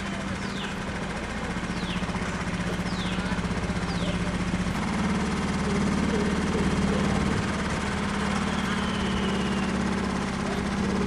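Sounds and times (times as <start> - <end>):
boat engine droning: 0.0 - 11.0
short high falling whistles: 8.2 - 10.0.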